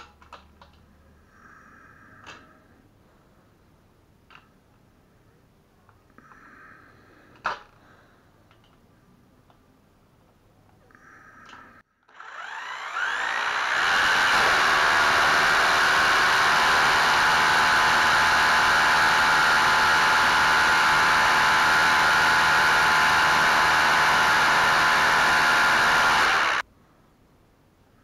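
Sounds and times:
drill bit hitting steel: 12.1s - 26.6s
electric drill drilling concrete: 12.1s - 26.6s.

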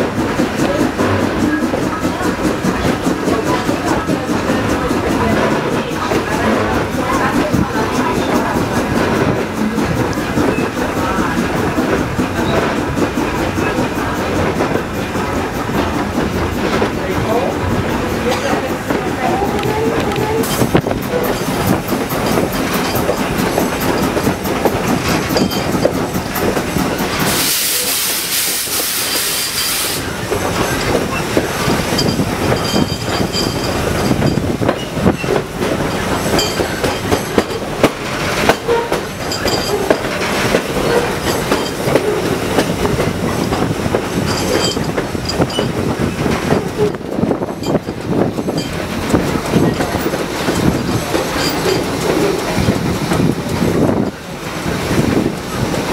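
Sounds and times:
loud steam hiss: 0.0s - 55.9s
steam locomotive rumbling: 0.0s - 55.9s
wheels clacking over rail joints: 0.0s - 55.9s.

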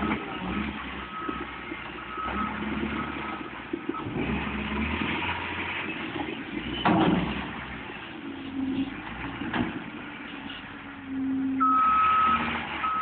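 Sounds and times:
loader engine running: 0.0s - 13.0s
backup alarm beeping: 11.6s - 13.0s.

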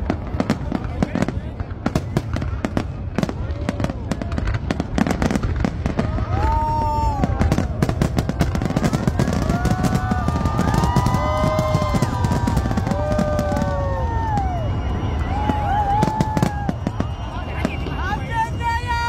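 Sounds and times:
fireworks crackling and banging: 0.0s - 19.0s
fireworks whistling: 0.0s - 19.0s.

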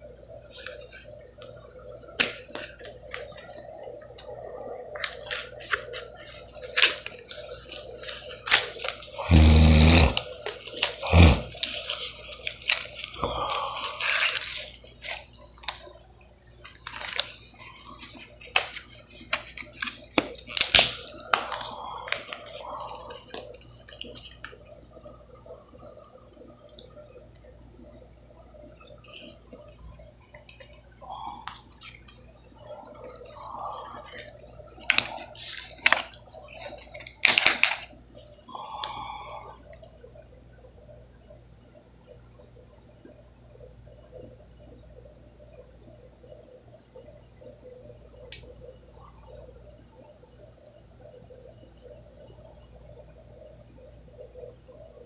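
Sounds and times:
plastic packaging tearing and crinkling: 5.0s - 15.9s, 16.7s - 24.4s, 34.0s - 38.3s.

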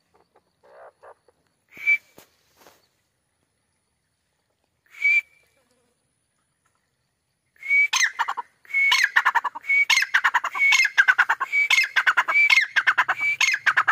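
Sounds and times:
bird whistled call: 1.7s - 2.2s, 4.9s - 5.6s, 7.6s - 13.9s.

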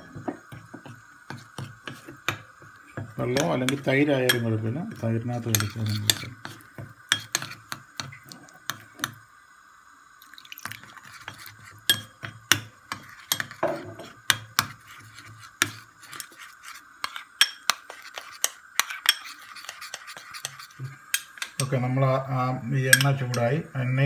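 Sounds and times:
metal spoon clinking in ceramic bowl: 11.9s - 12.1s.

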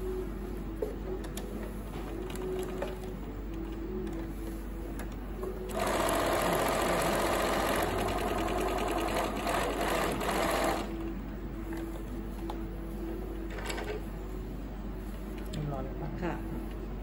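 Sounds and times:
sewing machine stitching: 5.7s - 10.9s.

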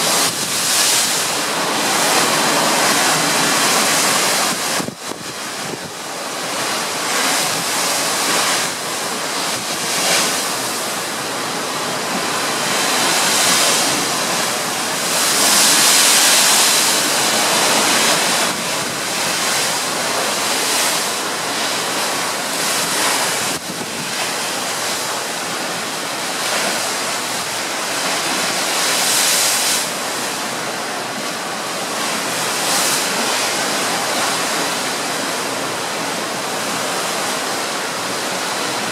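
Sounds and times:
sea water rushing along hull: 0.0s - 38.9s
wind blowing over microphone: 0.0s - 38.9s.

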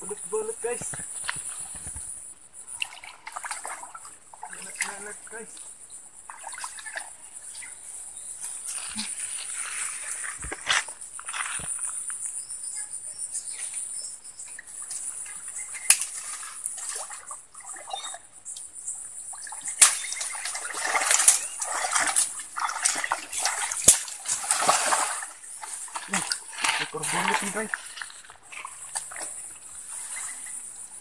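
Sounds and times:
stream water splashing: 2.6s - 11.9s, 14.4s - 18.4s, 19.1s - 31.0s
eel thrashing in water: 19.4s - 30.2s.

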